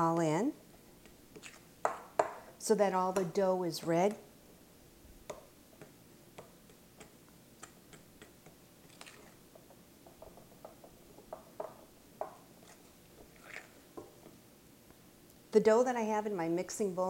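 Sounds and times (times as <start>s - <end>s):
dough kneading clicks and taps: 5.2s - 8.6s, 9.5s - 12.4s.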